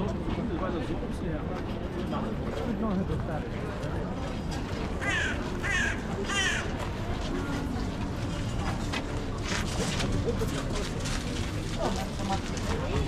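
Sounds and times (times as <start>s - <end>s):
crowd chatter: 0.0s - 13.0s
crow cawing: 5.0s - 6.7s.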